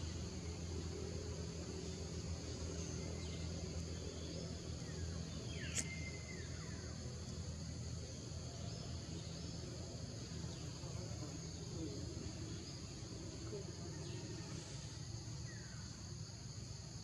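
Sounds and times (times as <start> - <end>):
insects droning: 0.0 - 17.0
low steady hum: 0.0 - 17.0.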